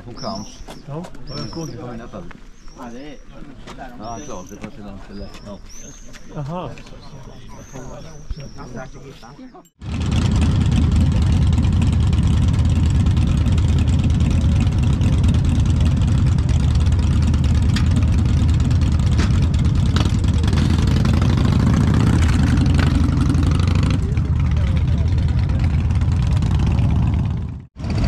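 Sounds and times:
motorcycle engine running: 9.8s - 28.0s.

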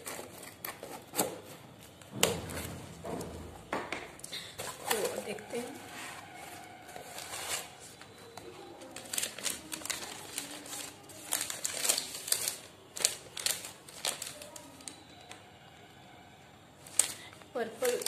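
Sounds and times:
packaging paper rustling: 4.3s - 15.4s, 16.8s - 18.0s.

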